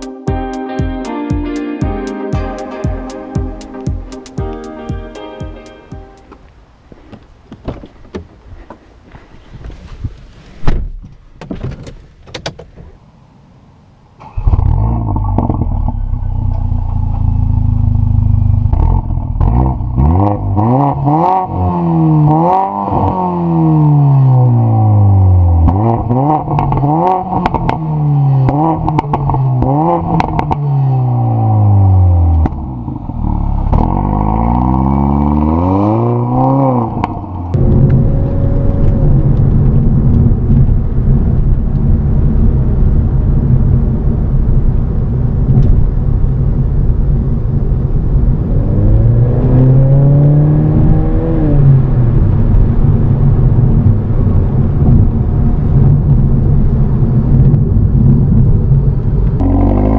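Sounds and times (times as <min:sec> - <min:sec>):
road noise: 0:02.0 - 0:59.9
car engine revving: 0:14.2 - 0:46.1, 0:47.5 - 0:59.9
engine inside moving car: 0:24.4 - 0:59.9.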